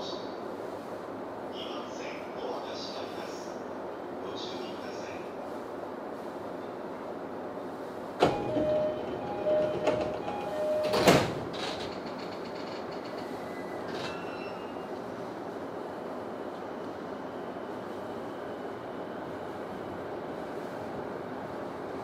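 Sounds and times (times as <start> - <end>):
two-note door closing chime: 8.2 - 11.3
sliding doors thumping shut: 8.2 - 13.1.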